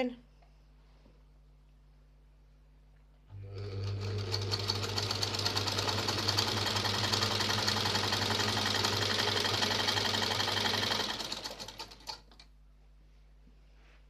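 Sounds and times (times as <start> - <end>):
sewing machine motor hum: 3.3 - 12.5.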